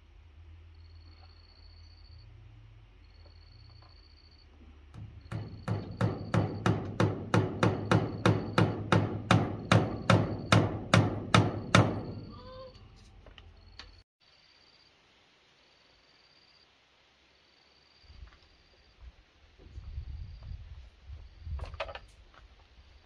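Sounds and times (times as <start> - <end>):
insects chirping: 0.5 - 22.0
hammer blows ringing: 5.0 - 12.4.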